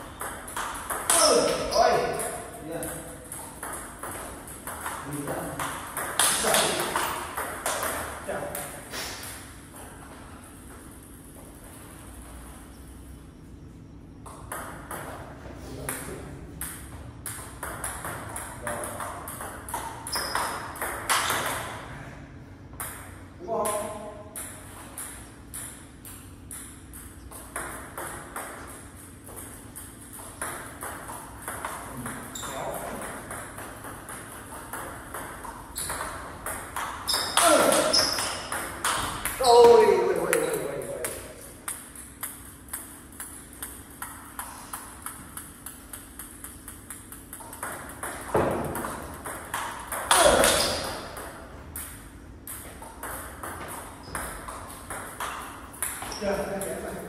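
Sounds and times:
table tennis ball bouncing on table: 0.0s - 11.5s, 14.2s - 21.8s, 22.7s - 57.0s
table tennis ball clicking off paddles: 0.1s - 9.8s, 16.6s - 21.7s, 23.7s - 39.4s, 40.2s - 56.9s
table tennis ball clicking: 40.3s - 56.8s.

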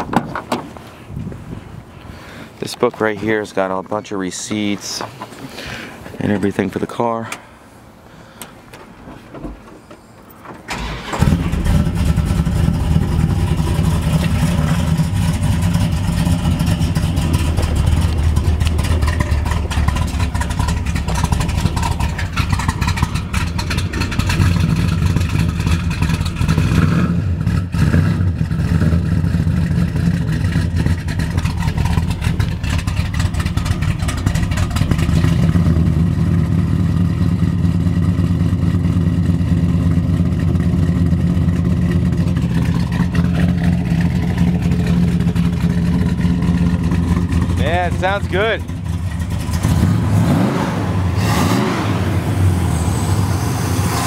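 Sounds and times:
car engine cranking and starting: 9.6s - 54.0s
engine idling: 10.7s - 50.2s.

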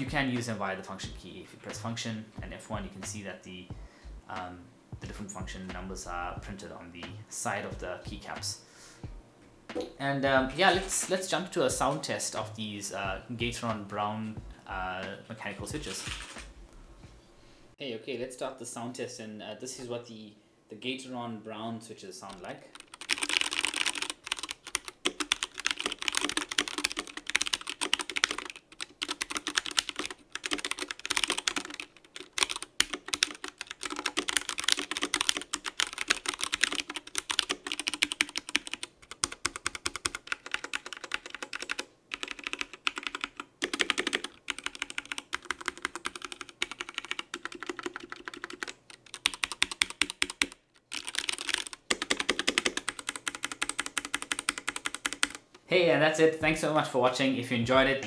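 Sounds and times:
mechanical keyboard typing: 22.3s - 55.4s.

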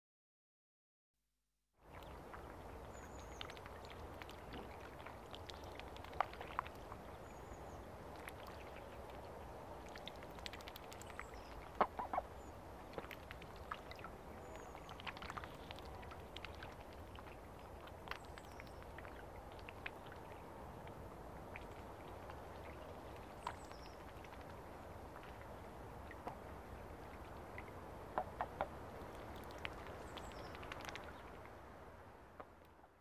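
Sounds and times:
faint outdoor hiss: 1.8s - 33.0s
ducks quacking: 11.8s - 12.3s.

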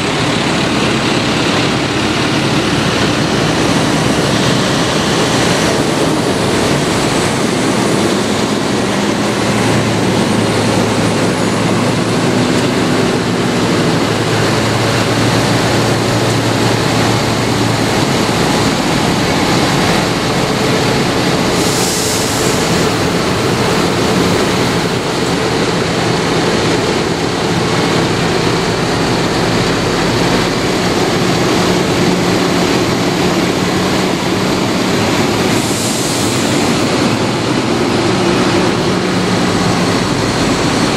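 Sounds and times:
tractors driving past: 0.0s - 40.9s.

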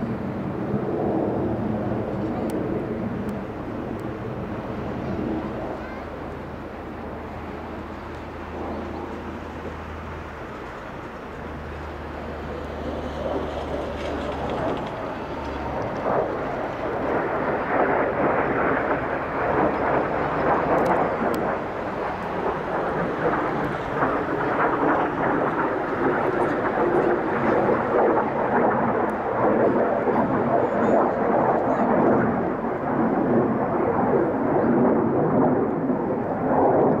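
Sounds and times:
jet engines flying overhead: 0.0s - 37.0s.

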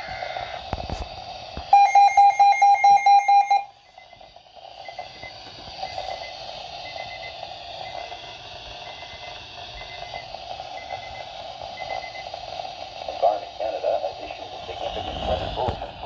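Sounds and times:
radio hiss: 0.0s - 1.7s, 4.1s - 16.0s
high electronic alarm beeps: 1.7s - 12.3s.

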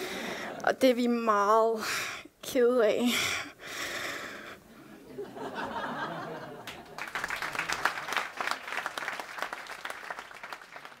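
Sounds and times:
audience applauding: 6.2s - 11.0s.

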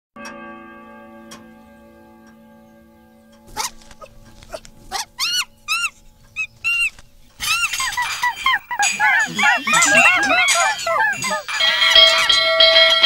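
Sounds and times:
pendulum clock chime ringing: 0.2s - 13.0s
monkeys screeching: 3.5s - 12.4s.

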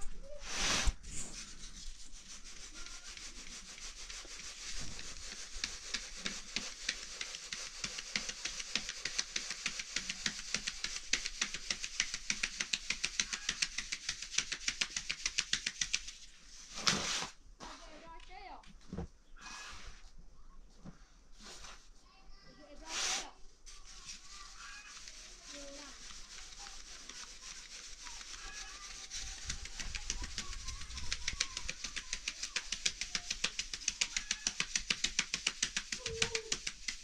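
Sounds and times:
rhythmic scraping strokes: 23.7s - 37.0s.

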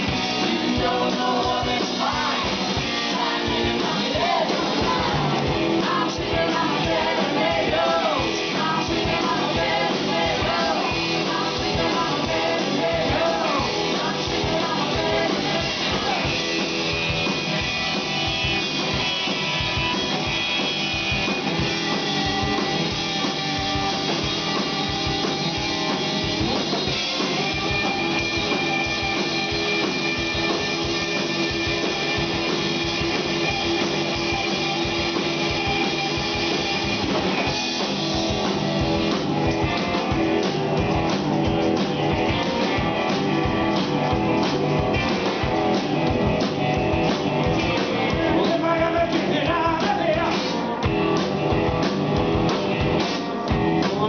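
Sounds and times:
drum kit: 0.0s - 54.0s
electric guitar: 0.0s - 54.0s
women singing: 0.4s - 16.4s.

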